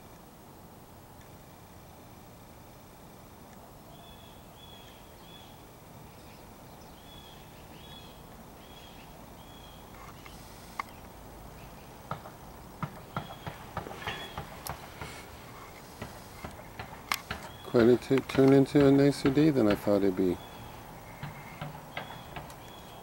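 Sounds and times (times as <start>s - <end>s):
small bird chirping: 3.9s - 14.7s, 15.5s - 18.2s, 20.2s - 23.0s.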